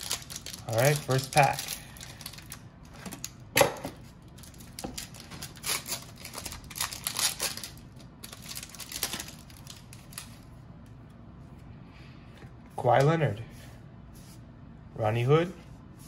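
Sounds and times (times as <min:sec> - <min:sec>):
foil wrapper crinkling: 0:00.0 - 0:03.4, 0:04.3 - 0:10.4.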